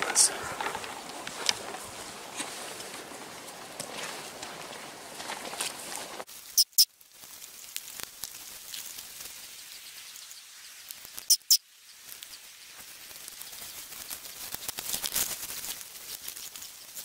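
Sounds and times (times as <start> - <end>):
footsteps through vegetation: 0.0 - 11.3, 12.0 - 17.0
sharp high-pitched clicks: 10.2 - 12.4.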